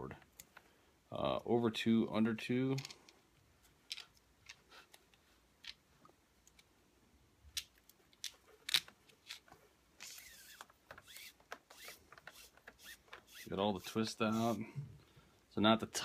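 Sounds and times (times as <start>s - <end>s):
cord rubbing hiss: 10.0s - 14.8s.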